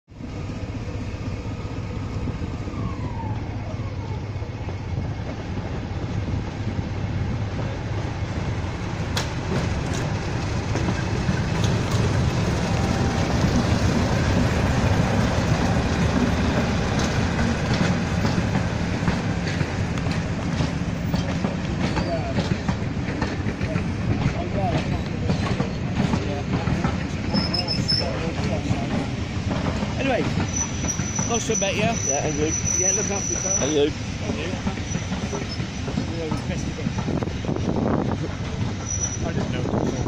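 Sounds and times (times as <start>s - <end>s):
diesel locomotive engine drone: 0.1s - 40.0s
wheels clacking over rail joints: 3.7s - 40.0s.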